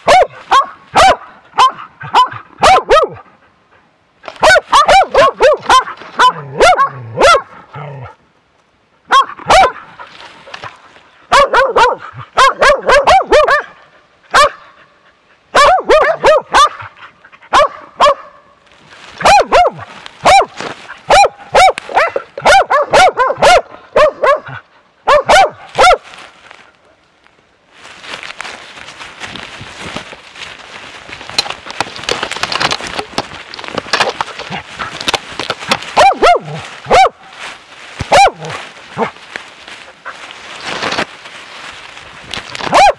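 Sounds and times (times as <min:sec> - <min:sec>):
dog barking: 0:00.0 - 0:03.3, 0:04.4 - 0:07.6, 0:09.1 - 0:09.9, 0:11.3 - 0:14.8, 0:15.5 - 0:18.5, 0:19.2 - 0:26.0, 0:36.0 - 0:37.2, 0:38.1 - 0:39.2, 0:42.7 - 0:42.9
rustling noise: 0:04.2 - 0:07.0, 0:07.7 - 0:12.2, 0:18.6 - 0:23.3, 0:25.3 - 0:42.9.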